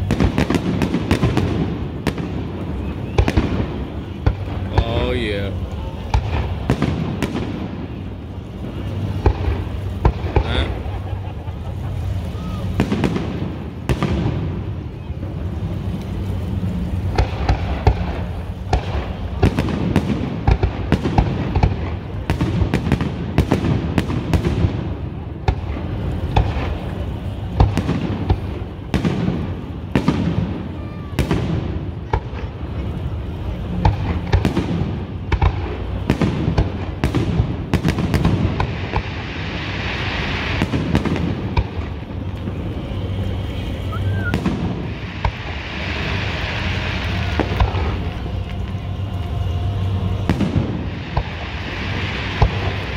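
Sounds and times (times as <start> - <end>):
firework shells bursting: 44.1 - 52.9.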